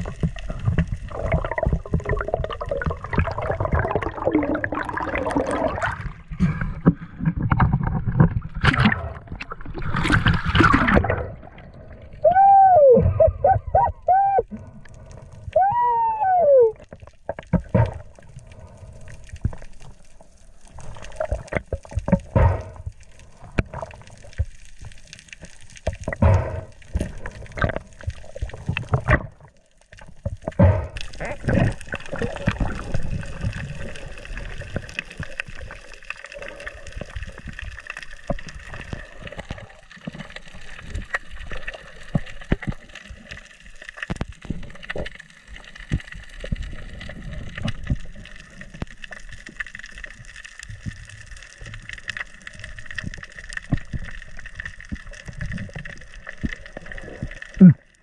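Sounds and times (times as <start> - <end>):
underwater knocks and thumps: 0.0 - 11.8, 13.0 - 14.2, 16.7 - 18.4, 21.1 - 25.0, 25.7 - 33.9
underwater gurgling: 0.0 - 58.0.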